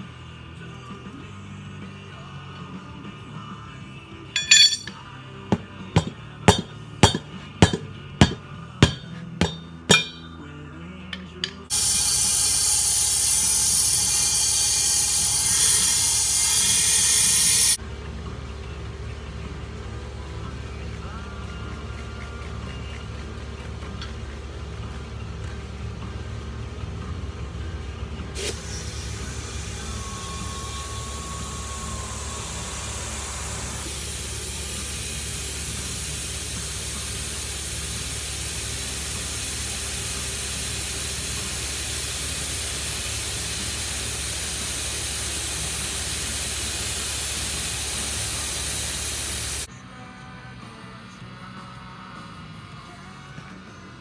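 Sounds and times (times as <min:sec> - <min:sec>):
compressed air hissing into tyre: 0:11.7 - 0:17.8, 0:28.4 - 0:49.7.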